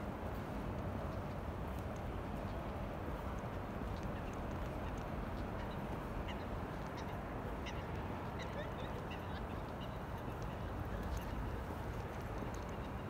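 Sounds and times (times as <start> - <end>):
city hum with low rumble: 0.0 - 13.0
faint bird calls: 4.0 - 11.7.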